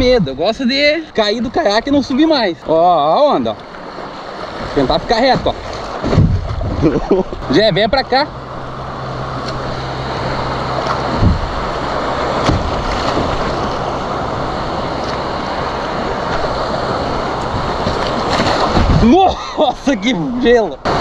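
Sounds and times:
ocean surf breaking: 0.0s - 21.0s
wind buffeting microphone: 4.4s - 7.8s, 8.6s - 19.5s
short knocks: 10.9s - 13.7s.

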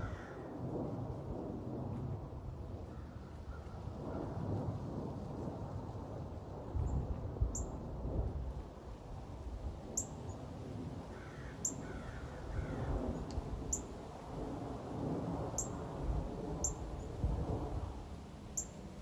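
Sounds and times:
crow cawing: 0.0s - 0.5s, 11.1s - 12.9s.

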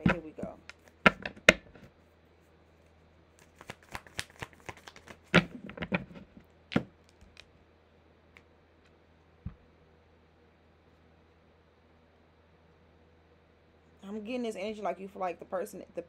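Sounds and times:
cards being shuffled: 0.0s - 1.9s, 3.4s - 7.5s.

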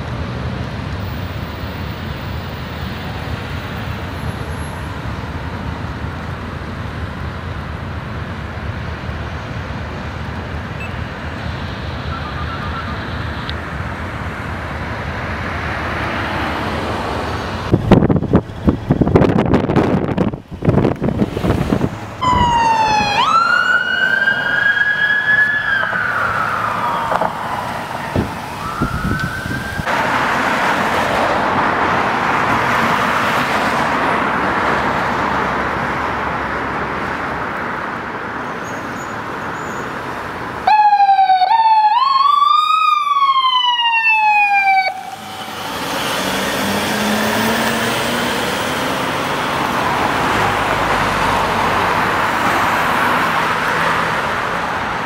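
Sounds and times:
road and vehicle noise: 0.0s - 55.0s
electronic siren sweeping: 10.8s - 13.5s, 22.2s - 29.9s, 40.7s - 49.8s
ambulance siren: 10.8s - 13.6s, 22.2s - 30.1s, 40.6s - 51.0s.

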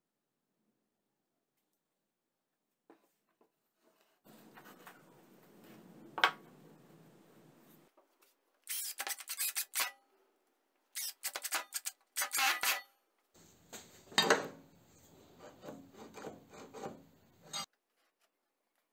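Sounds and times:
cordless drill driving screws: 8.7s - 9.9s, 11.0s - 12.8s.

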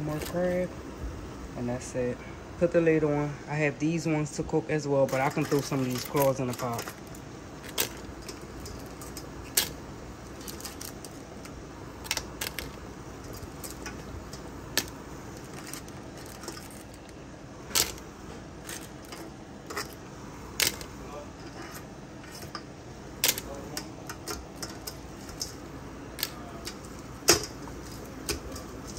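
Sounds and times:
crab pieces clacking against metal: 5.1s - 18.0s, 18.6s - 20.0s, 20.6s - 20.9s, 21.6s - 28.9s.

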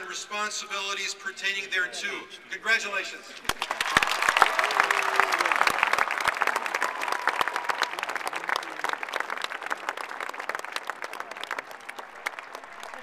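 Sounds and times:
crowd applauding: 3.5s - 13.0s.

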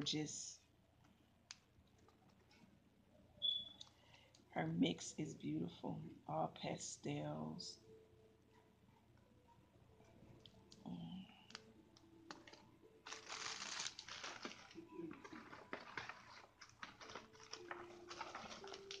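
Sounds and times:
paper and cellophane rustling: 12.3s - 19.0s.

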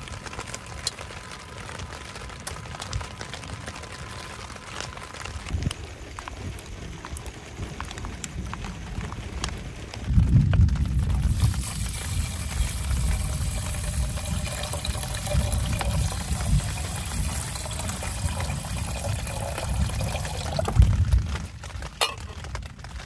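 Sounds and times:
water pouring into metal pot: 10.9s - 21.0s, 22.0s - 22.4s.

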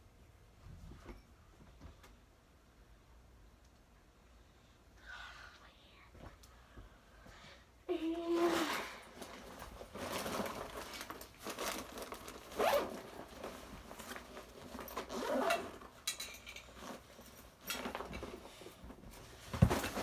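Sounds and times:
fabric rustling: 8.2s - 16.0s
backpack zipper: 8.3s - 9.1s, 12.5s - 13.4s, 14.8s - 15.9s
bag thump: 19.5s - 20.0s.

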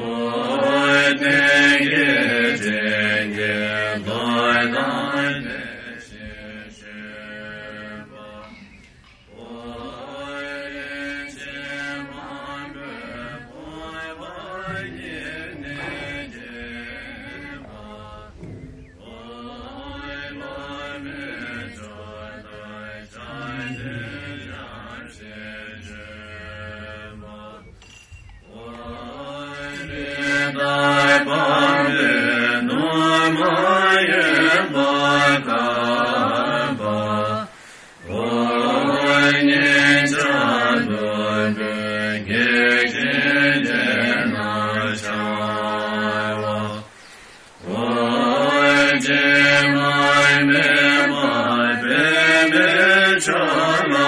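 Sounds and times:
melodic mantra chanting: 9.3s - 27.8s.

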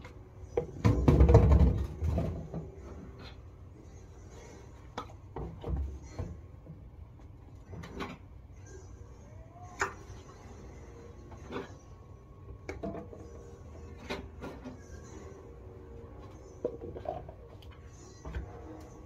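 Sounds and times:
household items knocking and clattering: 0.5s - 2.9s.

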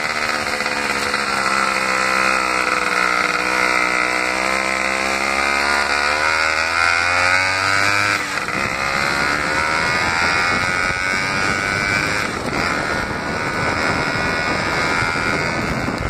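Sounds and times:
motorcycle two-stroke engine: 0.0s - 16.0s
road rumble: 0.0s - 16.0s
heavy wind on microphone: 7.4s - 16.0s.

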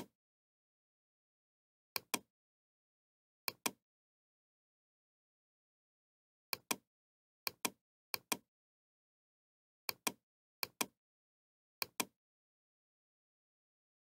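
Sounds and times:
computer mouse clicking: 2.0s - 2.3s, 3.5s - 3.8s, 6.5s - 6.8s, 7.5s - 8.4s, 9.9s - 11.0s, 11.8s - 12.2s.

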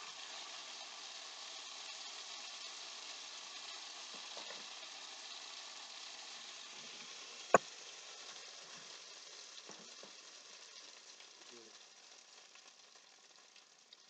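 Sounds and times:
oil sizzling in a frying pan: 0.0s - 14.0s.

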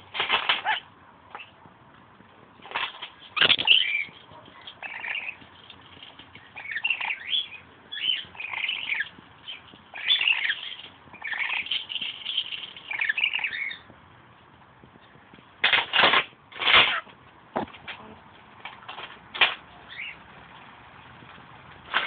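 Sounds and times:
lorikeet chattering: 3.4s - 4.2s, 4.8s - 5.4s, 6.4s - 13.9s, 19.9s - 20.2s.

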